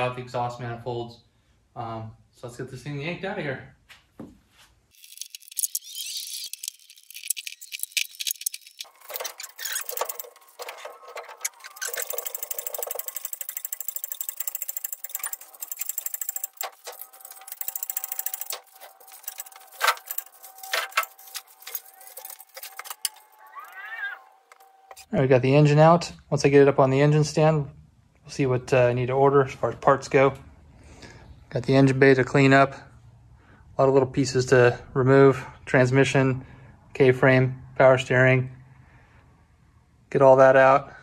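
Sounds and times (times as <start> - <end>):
hoist chain clicking and rattling: 4.9 - 23.4.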